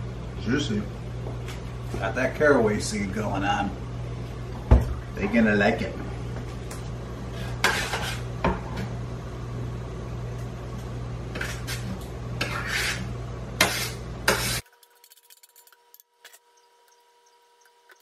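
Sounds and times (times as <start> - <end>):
steady low hum: 0.0 - 14.6
metal utensil scraping a metal pan: 7.6 - 8.2, 12.4 - 14.6.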